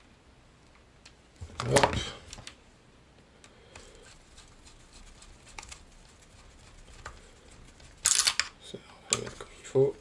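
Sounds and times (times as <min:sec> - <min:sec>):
small parts and screwdriver clicking: 0:08.0 - 0:08.5.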